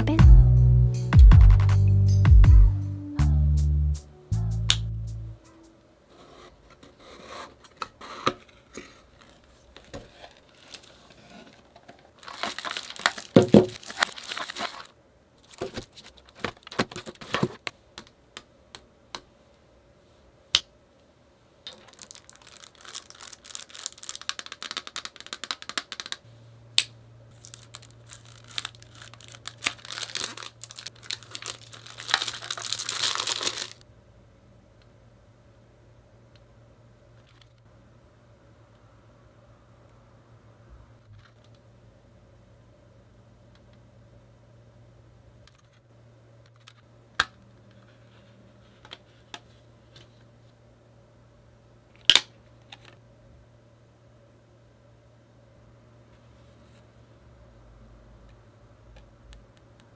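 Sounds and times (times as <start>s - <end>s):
shrink-wrap crinkling and tearing: 10.1s - 11.6s, 12.2s - 17.3s, 21.7s - 26.2s, 27.3s - 33.8s.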